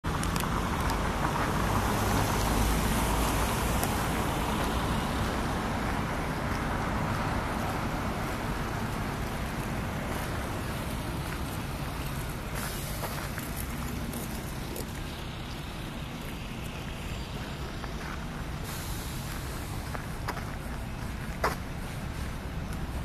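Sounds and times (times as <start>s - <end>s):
road traffic rumble: 0.0s - 23.0s
tyre hiss: 12.6s - 13.2s, 18.5s - 20.3s.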